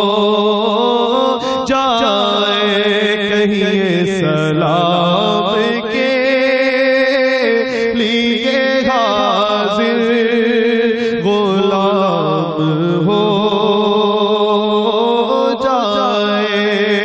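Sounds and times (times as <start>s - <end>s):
man singing into microphone: 0.0s - 17.0s.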